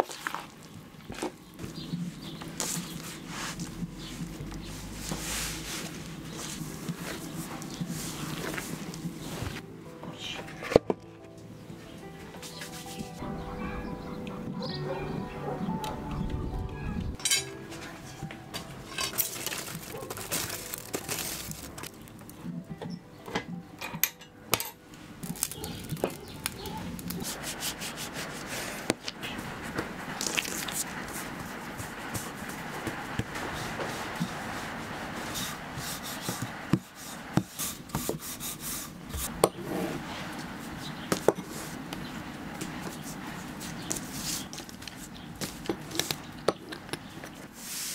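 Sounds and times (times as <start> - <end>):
dough rubbing on table: 1.9 - 9.6, 26.2 - 41.9, 47.4 - 47.9
sharp metallic clank: 17.2 - 17.6
metal poker scraping coals: 18.6 - 22.4, 25.2 - 29.4.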